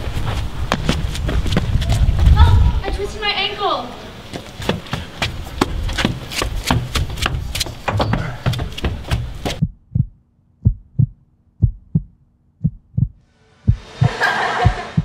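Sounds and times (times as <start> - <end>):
footsteps running up stairs: 4.3 - 10.1
heartbeat thumps: 4.7 - 15.0.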